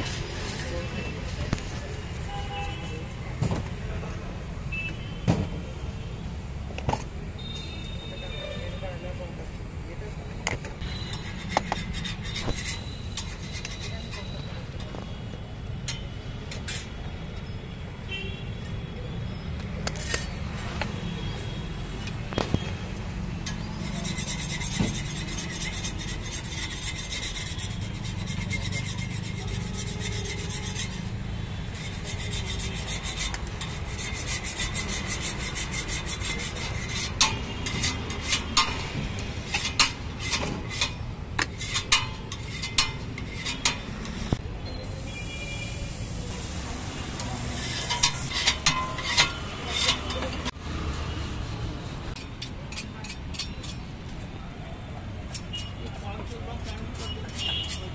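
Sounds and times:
cheese grating on metal grater: 0:10.8 - 0:14.5, 0:23.5 - 0:44.2, 0:47.2 - 0:50.5, 0:55.4 - 0:57.9.

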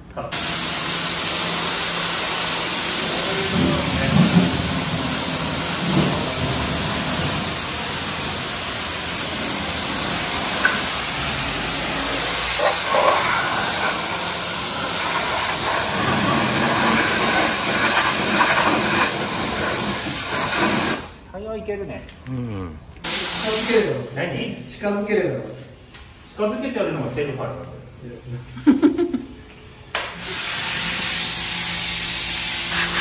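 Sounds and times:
pump running: 0:00.3 - 0:21.1, 0:30.0 - 0:33.0
pressure washer spray hissing: 0:00.3 - 0:21.3, 0:23.0 - 0:24.1, 0:30.0 - 0:33.0.

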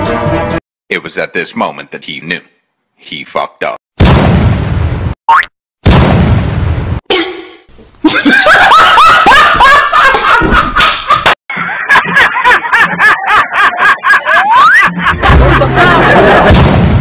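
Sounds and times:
person laughing hard: 0:08.0 - 0:16.5
hand claps or slaps: 0:10.1 - 0:11.4.

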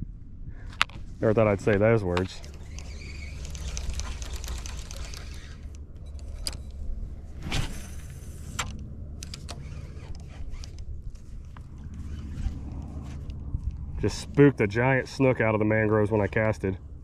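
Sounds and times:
low rumble: 0:00.0 - 0:17.0
fishing reel clicking and rattling: 0:02.1 - 0:06.8.

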